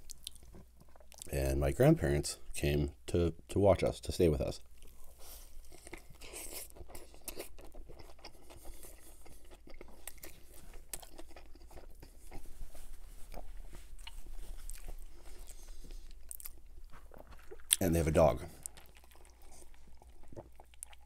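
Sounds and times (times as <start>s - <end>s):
crunchy chewing: 4.8s - 21.0s.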